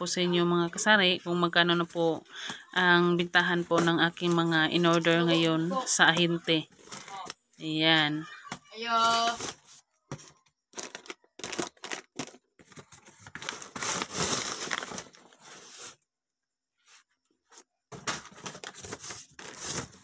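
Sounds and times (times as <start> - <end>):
cardboard rustling: 8.9 - 16.0, 16.8 - 20.0
cardboard tearing: 10.7 - 16.0, 18.0 - 20.0.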